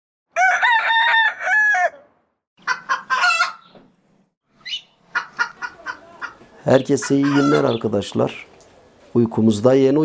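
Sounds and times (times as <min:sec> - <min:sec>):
rooster crowing: 0:00.3 - 0:03.6
clucking calls: 0:02.6 - 0:03.9, 0:04.6 - 0:09.1.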